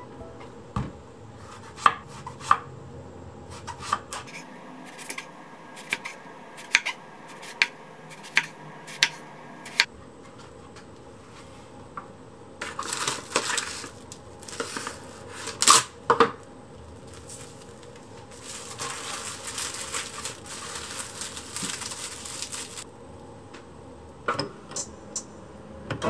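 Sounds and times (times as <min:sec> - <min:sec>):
cling film crinkling: 0:12.6 - 0:15.9, 0:16.8 - 0:22.8.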